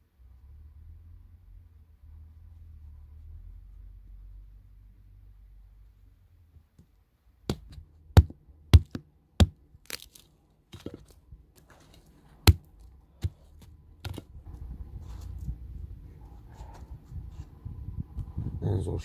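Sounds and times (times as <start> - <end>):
dry sticks cracking: 7.5 - 14.3.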